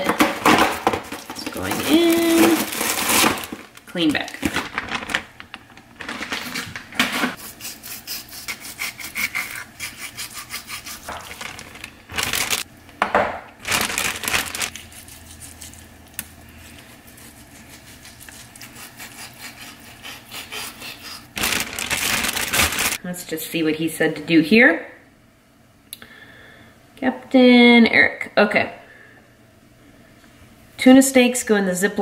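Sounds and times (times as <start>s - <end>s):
knife scraping cutting board: 7.0s - 11.3s, 16.8s - 21.3s
knife sawing through fish: 7.4s - 11.2s, 14.7s - 15.8s, 16.6s - 23.0s.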